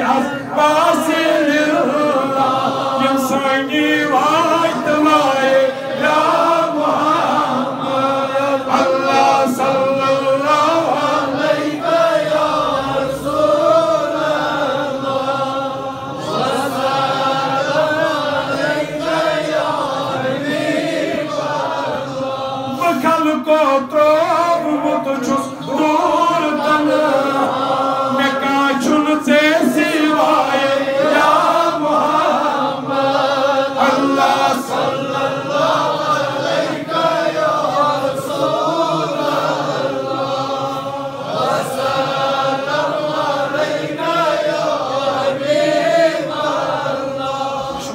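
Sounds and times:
men chanting through microphones: 0.0s - 47.9s.

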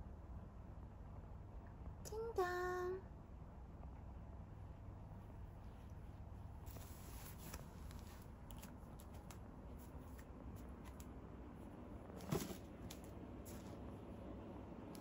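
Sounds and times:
faint rustling: 5.4s - 14.0s
light clicks and scratches: 5.6s - 11.2s.

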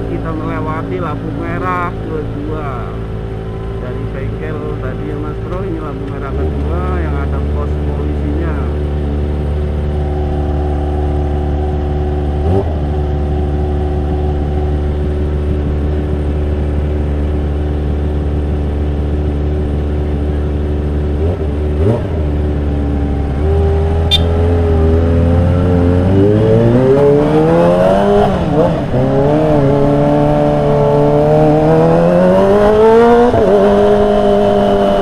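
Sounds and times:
motorcycle revving and pulling away: 0.0s - 35.0s
motorcycle engine idling: 8.2s - 24.5s
motorcycle throttle blips: 8.7s - 25.8s.

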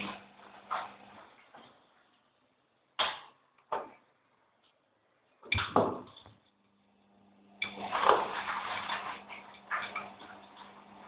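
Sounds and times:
laundry tumbling in washing machine: 0.0s - 2.1s, 7.5s - 11.0s
washing machine motor hum: 0.0s - 2.8s, 5.3s - 11.0s.

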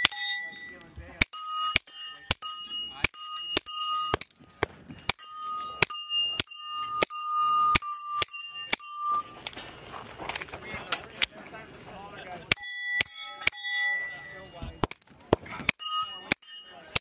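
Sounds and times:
steel plate target ringing: 0.0s - 4.3s, 4.9s - 9.5s, 12.5s - 14.9s, 15.6s - 17.0s.

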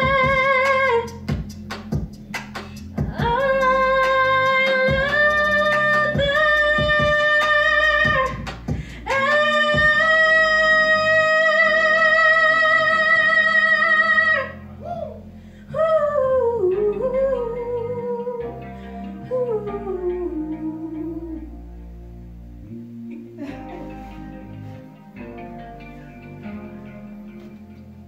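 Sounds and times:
woman singing: 0.0s - 1.2s, 3.0s - 14.6s, 15.7s - 21.6s
backing music: 0.0s - 28.0s.

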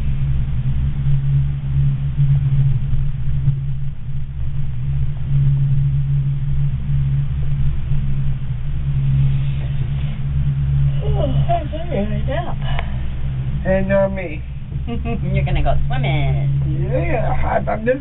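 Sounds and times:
gondola cabin rumbling: 0.0s - 18.0s
wind gusts buffeting: 7.6s - 18.0s.

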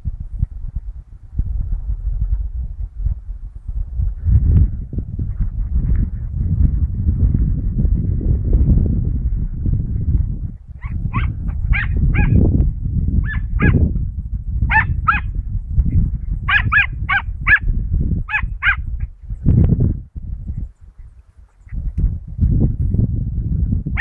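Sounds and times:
low rumble: 0.0s - 24.0s
dog yelping barks: 10.8s - 12.4s, 13.2s - 13.8s, 14.7s - 15.3s, 16.5s - 17.7s, 18.3s - 18.8s.

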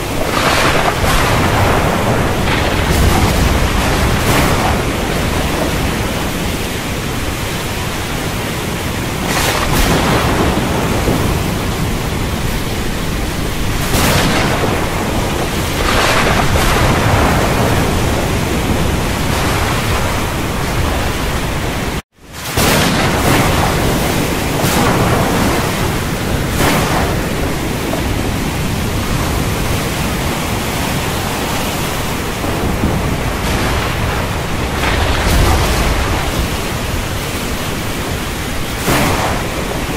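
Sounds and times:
dense steady rain hiss: 0.0s - 39.9s
rolling thunder: 0.0s - 39.9s.

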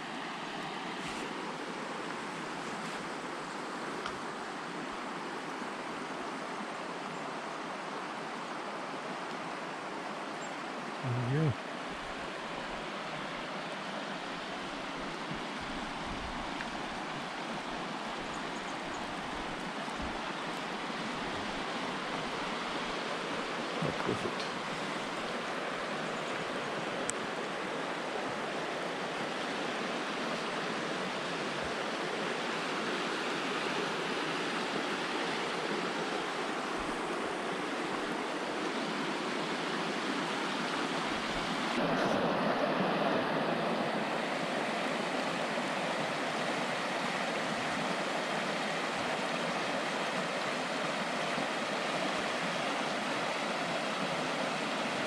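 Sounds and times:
river rushing over rocks: 0.0s - 55.0s.

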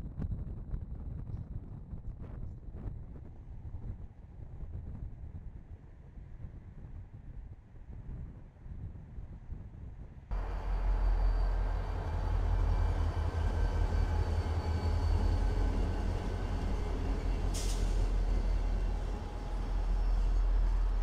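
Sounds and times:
diesel locomotives rumbling past: 10.3s - 21.0s
air hiss: 17.5s - 18.6s.

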